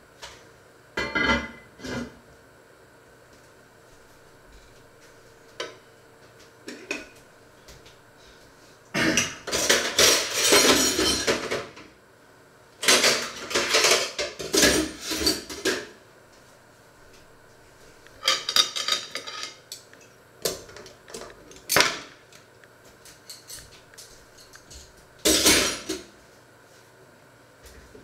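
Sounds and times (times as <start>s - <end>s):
dishes and cutlery clattering: 9.0s - 11.8s, 12.8s - 15.9s, 18.2s - 19.6s, 25.3s - 26.1s.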